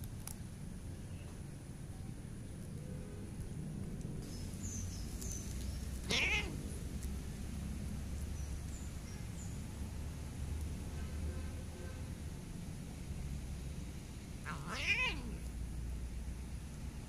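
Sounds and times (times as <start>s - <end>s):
cat meow falling in pitch: 14.5s - 15.4s.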